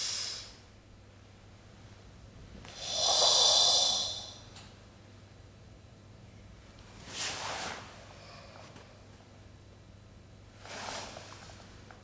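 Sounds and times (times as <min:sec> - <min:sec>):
person breathing forcefully: 0:00.0 - 0:00.6, 0:02.7 - 0:04.5.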